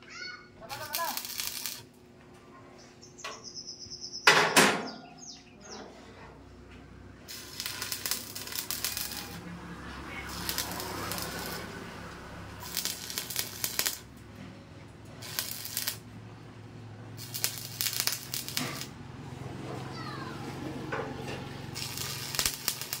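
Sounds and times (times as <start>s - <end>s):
arc welder crackling: 0.6s - 2.0s, 7.0s - 19.8s, 21.2s - 23.0s.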